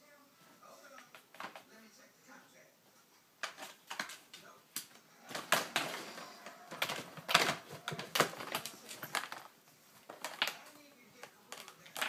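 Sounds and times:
cat pawing plastic toy: 0.9s - 1.7s, 3.4s - 12.0s.

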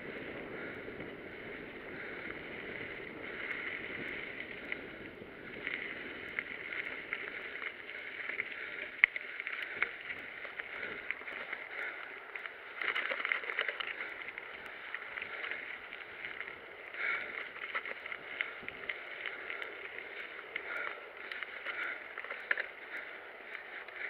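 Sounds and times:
tyre and wind rush: 0.0s - 9.0s
bike rattling clicks and knocks: 0.0s - 24.0s.

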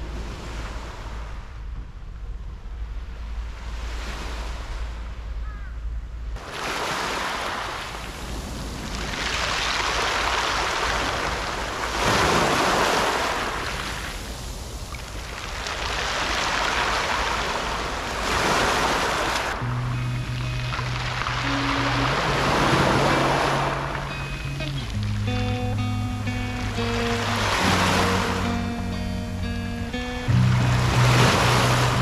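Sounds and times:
wind rumbling on microphone: 0.0s - 32.0s
waves washing on pebble beach: 6.4s - 19.7s, 20.4s - 24.7s.

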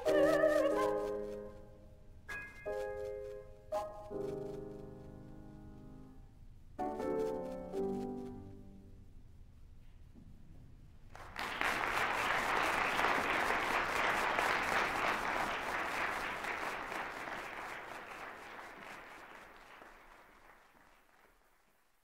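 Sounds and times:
audience applauding: 11.2s - 21.8s.

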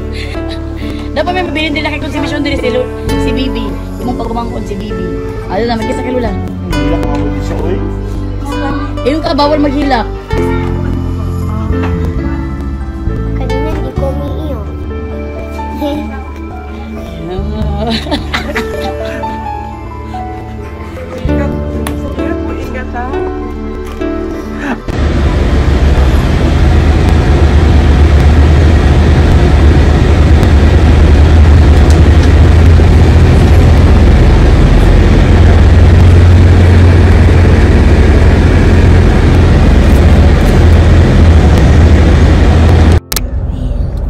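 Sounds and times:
bus engine and road rumble: 23.8s - 44.0s.

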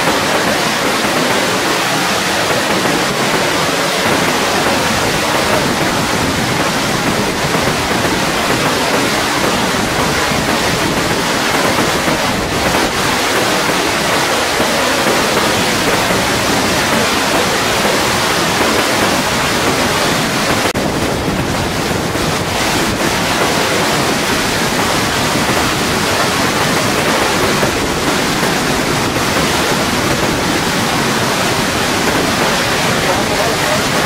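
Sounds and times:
flood water rushing: 0.0s - 34.0s.

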